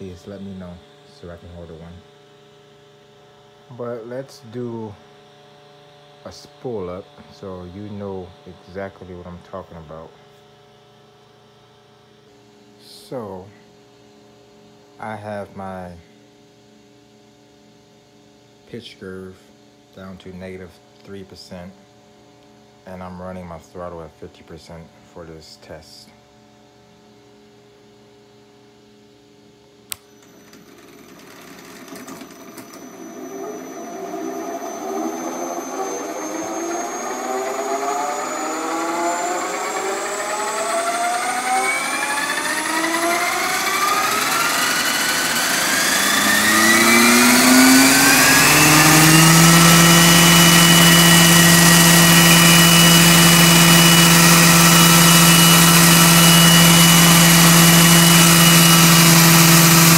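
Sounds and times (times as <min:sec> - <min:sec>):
sharp click: 0:29.9 - 0:30.3
rc helicopter motor and rotor whine: 0:30.3 - 0:59.9.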